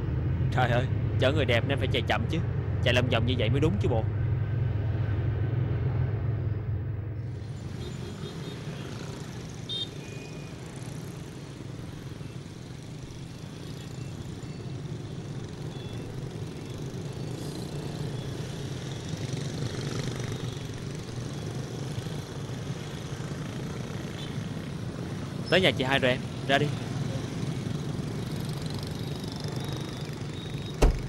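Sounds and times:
hum of passing vehicles: 0.0 - 31.0.

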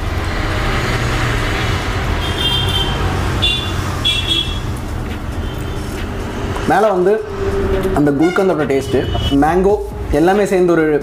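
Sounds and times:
road traffic rumble: 0.0 - 11.0
high-pitched horn toots: 7.4 - 9.5.

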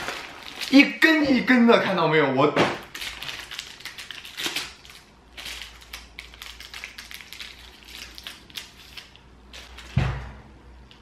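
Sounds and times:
snack packaging crinkling: 0.0 - 1.2, 2.8 - 10.0.

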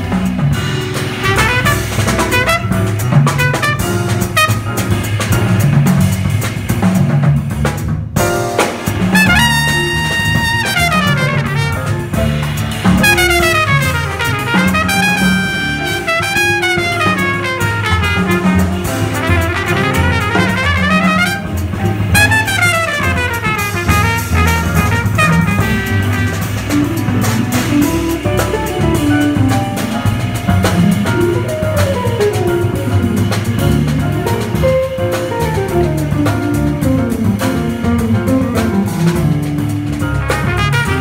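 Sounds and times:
drum kit with cymbals: 0.0 - 41.0
walking double bass: 0.0 - 41.0
trumpet solo: 1.2 - 5.0, 9.1 - 29.3, 40.1 - 41.0.

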